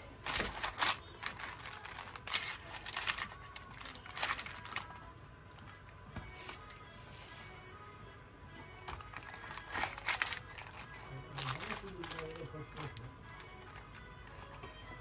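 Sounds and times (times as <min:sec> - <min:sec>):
paper crinkling and rustling: 0:00.2 - 0:05.0, 0:08.8 - 0:14.6.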